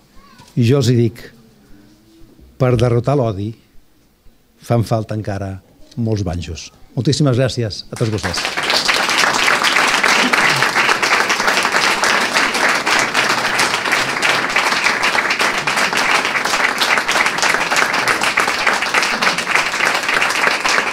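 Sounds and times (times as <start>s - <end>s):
audience applauding: 7.9s - 20.9s.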